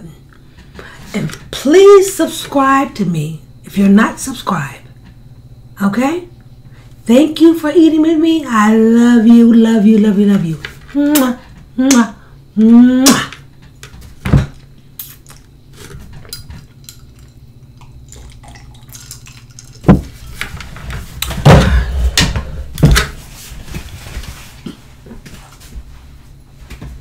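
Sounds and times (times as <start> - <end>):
rustling: 23.1 - 27.0.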